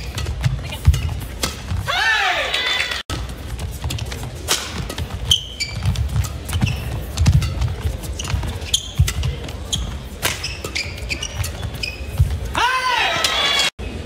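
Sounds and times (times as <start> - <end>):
shoes squeaking on court: 0.0 - 1.9, 2.5 - 12.6
racket hitting shuttlecock: 0.0 - 2.0, 3.0 - 12.6.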